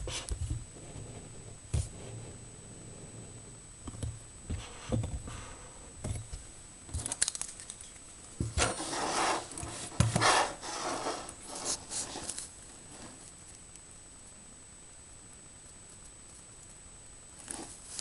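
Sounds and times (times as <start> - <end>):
faint high-pitched whine: 0.0 - 18.0
rustling and scraping: 4.5 - 13.6, 17.4 - 18.0.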